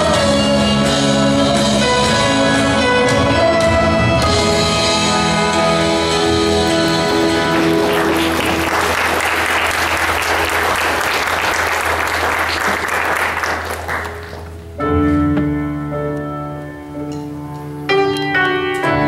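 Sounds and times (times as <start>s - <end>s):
live band chord: 0.0s - 19.0s
piano and keyboard playing: 0.0s - 19.0s
audience applauding: 6.7s - 14.6s.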